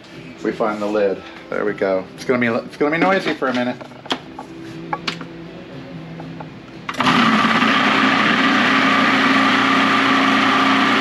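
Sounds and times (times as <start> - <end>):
food processor motor running: 6.9 - 11.0.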